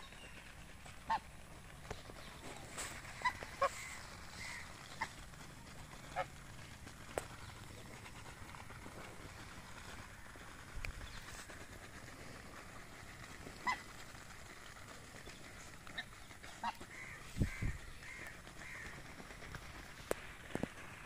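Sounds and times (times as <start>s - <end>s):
ducks pecking clicks and taps: 0.0s - 21.0s
duck calls: 1.0s - 1.4s, 2.9s - 5.3s, 6.0s - 6.4s, 13.5s - 14.0s, 15.9s - 19.1s.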